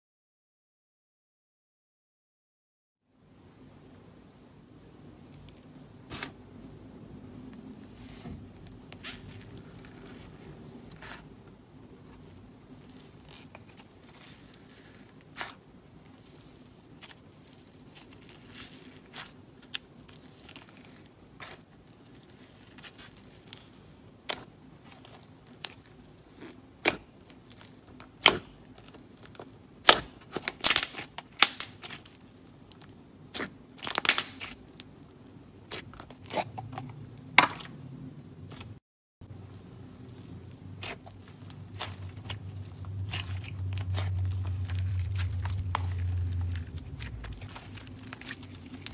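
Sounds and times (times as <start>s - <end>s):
slime crackling and popping: 12.8s - 34.9s, 40.8s - 48.9s.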